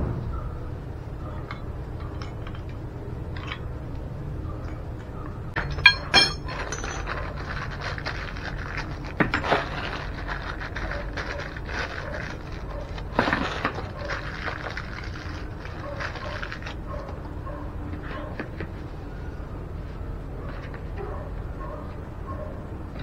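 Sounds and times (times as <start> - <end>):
metal valve clinking: 5.6 - 7.1
paper crinkling: 7.0 - 17.2.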